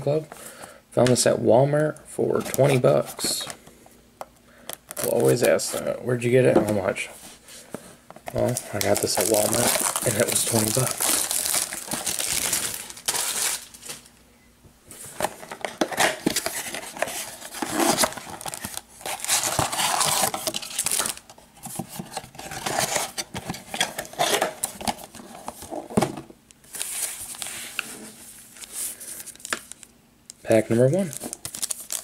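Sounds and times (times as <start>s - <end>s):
foil packs crinkling and rustling: 4.7s - 5.8s, 8.3s - 14.1s, 15.1s - 25.7s, 26.6s - 29.9s, 30.5s - 32.0s.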